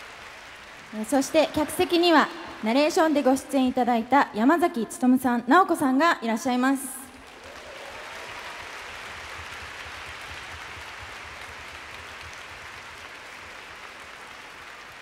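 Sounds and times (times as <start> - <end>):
audience applauding: 0.0 - 4.1, 7.1 - 15.0.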